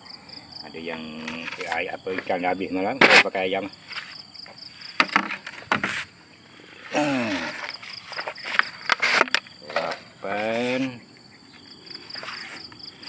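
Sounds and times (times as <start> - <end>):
high drone of insects: 0.0 - 13.0
eel trap knocking and clattering: 5.0 - 5.9.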